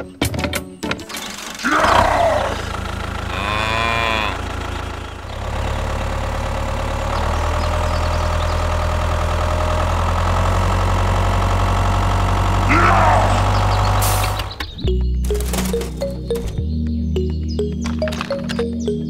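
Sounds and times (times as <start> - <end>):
engine idling: 1.1 - 16.5
cow mooing: 1.6 - 4.6.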